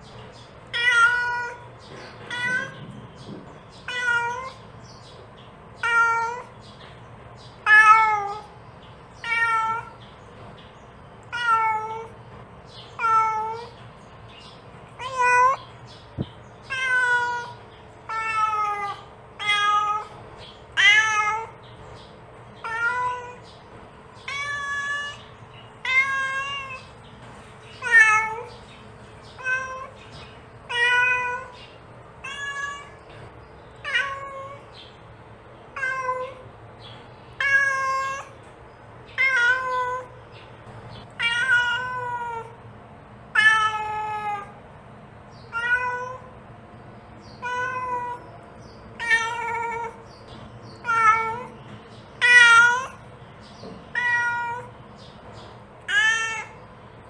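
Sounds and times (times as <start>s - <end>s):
cat meowing: 0.7s - 2.9s, 3.8s - 4.7s, 5.8s - 6.5s, 7.6s - 8.6s, 9.2s - 10.0s, 11.2s - 12.1s, 13.0s - 13.8s, 15.0s - 15.7s, 16.6s - 21.6s, 22.6s - 23.4s, 24.2s - 27.0s, 27.7s - 28.6s, 29.3s - 30.0s, 30.7s - 31.6s, 32.2s - 33.1s, 33.8s - 34.8s, 35.7s - 36.4s, 37.4s - 38.4s, 39.1s - 40.2s, 41.2s - 42.6s, 43.3s - 44.6s, 45.5s - 46.3s, 47.3s - 48.3s, 49.0s - 50.0s, 50.8s - 53.1s, 53.9s - 54.8s, 55.8s - 56.7s.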